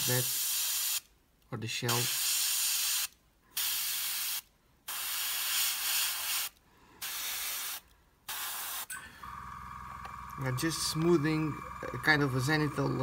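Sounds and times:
airbrush spraying hissing bursts: 0.0 - 1.1, 1.9 - 8.9.

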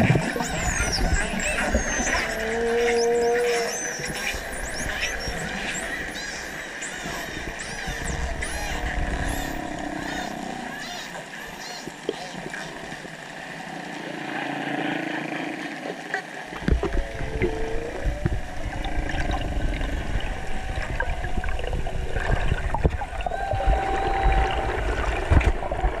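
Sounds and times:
dolphin whistles: 0.2 - 12.8, 23.2 - 24.8.

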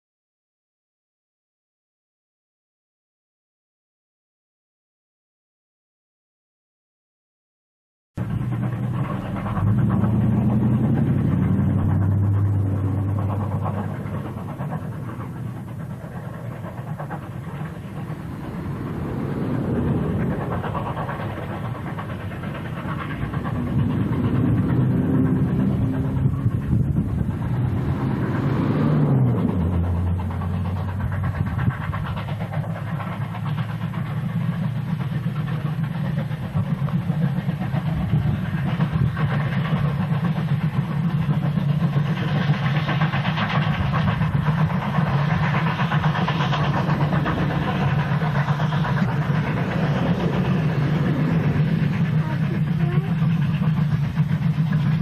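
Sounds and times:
low droning tone: 8.2 - 16.6, 17.4 - 32.1, 45.9 - 55.0
steam locomotives working hard: 8.2 - 55.0.

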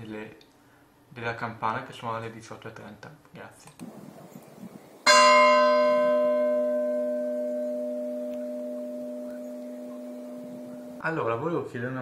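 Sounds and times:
church bell ringing: 5.0 - 11.0.

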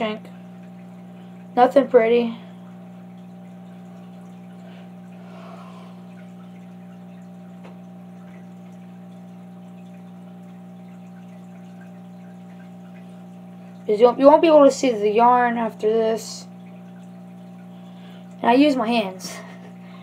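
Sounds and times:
steady low-toned hum: 0.0 - 20.0.

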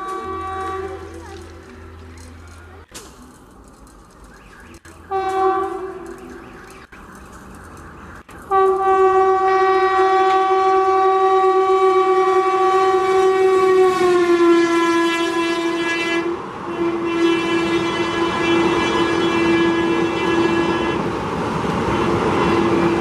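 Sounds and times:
locomotive horn blast: 0.0 - 1.6, 5.0 - 6.6, 8.5 - 21.2, 21.8 - 23.0
rushing rattle of passing coaches: 0.0 - 9.2.

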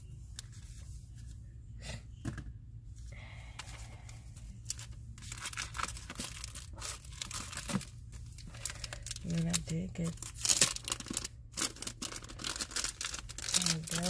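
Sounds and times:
paper and plastic rustling: 4.6 - 14.0.

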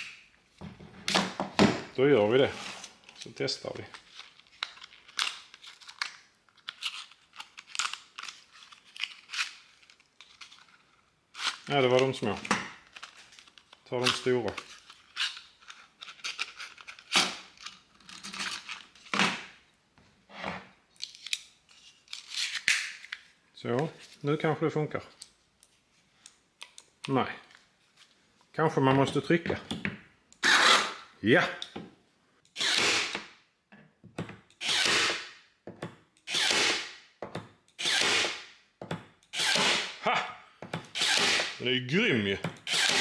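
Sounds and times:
electric stapler firing: 37.9 - 38.4.

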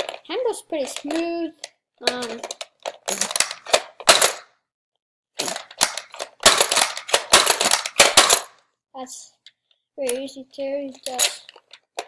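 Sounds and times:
plastic toy blaster clicks: 5.4 - 8.6.

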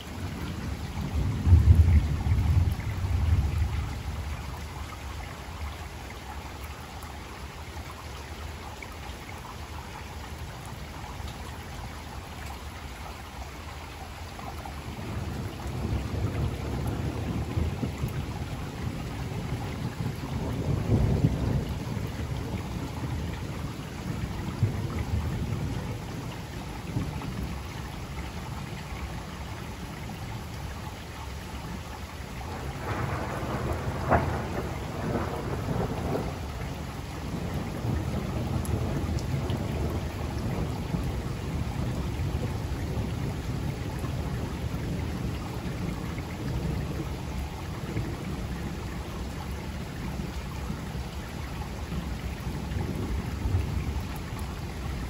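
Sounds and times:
steady rain: 0.0 - 55.0
rolling thunder: 0.6 - 4.4, 14.9 - 25.9, 32.5 - 48.8
sharp thunder crack: 32.8 - 36.4.

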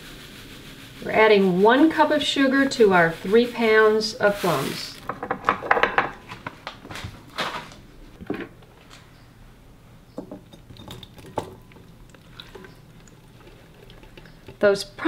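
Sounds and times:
dishes clinking and knocking: 5.0 - 6.3, 10.2 - 14.6.

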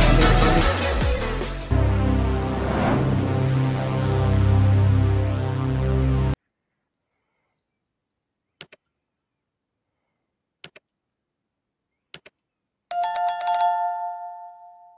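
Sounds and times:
bright bell-like chime: 13.0 - 14.9.

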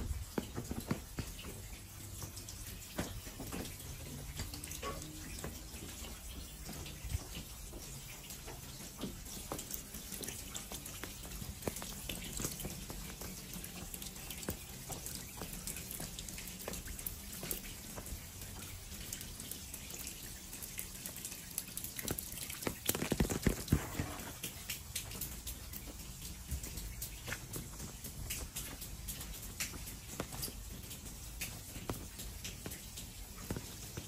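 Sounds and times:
running water: 0.0 - 34.0
water dripping: 0.0 - 34.0.

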